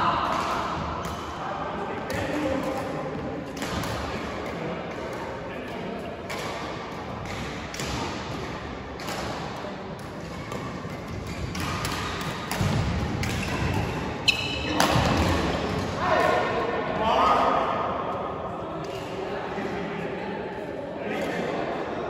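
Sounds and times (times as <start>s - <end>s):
racket hitting shuttlecock: 3.5s - 15.9s.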